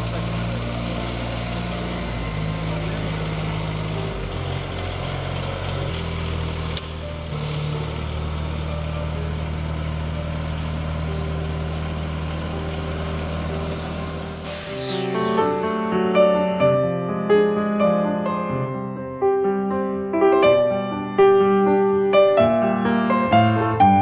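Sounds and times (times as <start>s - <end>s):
utility vehicle engine running: 0.0s - 16.0s.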